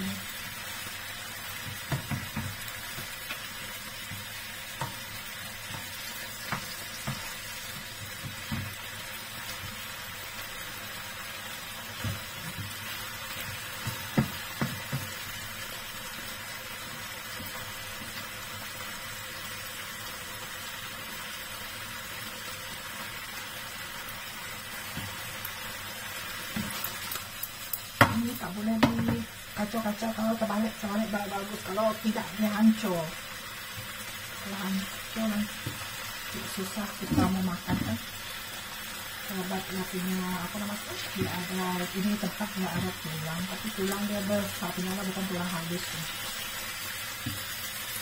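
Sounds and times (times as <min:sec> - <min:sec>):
fish sizzling in a frying pan: 0:00.0 - 0:48.0
spatula knocking against pan: 0:01.6 - 0:03.4, 0:13.8 - 0:15.1, 0:28.8 - 0:29.3.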